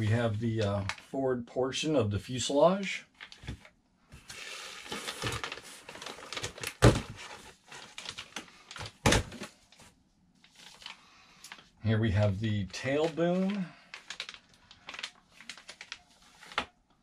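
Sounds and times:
plastic bags rustling: 4.2s - 16.8s.

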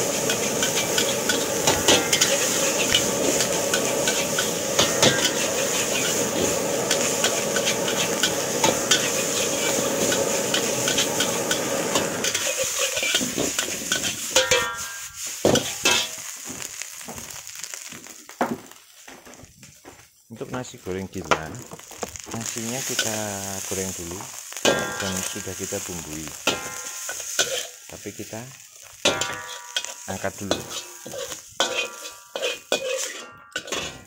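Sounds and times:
metal spatula scraping wok: 0.0s - 16.3s, 22.4s - 27.8s, 29.0s - 34.0s
food sizzling in a wok: 0.0s - 34.0s
spatula clinking against wok: 12.2s - 15.1s, 29.0s - 34.0s.

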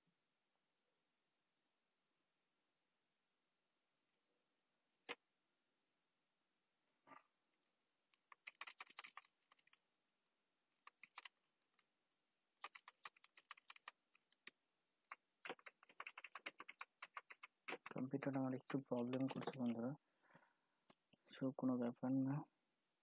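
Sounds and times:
keyboard typing: 8.2s - 9.8s, 10.8s - 11.4s, 12.6s - 19.9s.

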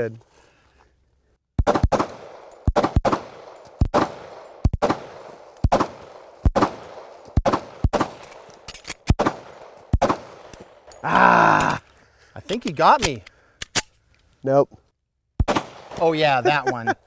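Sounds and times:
rapid pistol fire: 1.6s - 8.2s, 9.1s - 10.5s, 15.4s - 16.0s.

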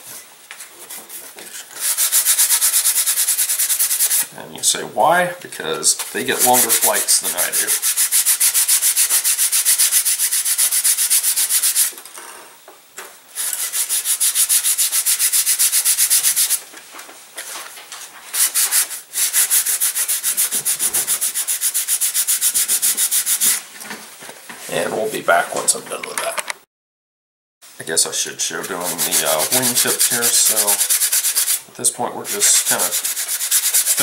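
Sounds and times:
sandpaper rubbing on wood: 0.8s - 4.3s, 5.9s - 11.9s, 13.4s - 16.6s, 18.3s - 23.6s, 28.2s - 31.6s, 32.2s - 34.0s.

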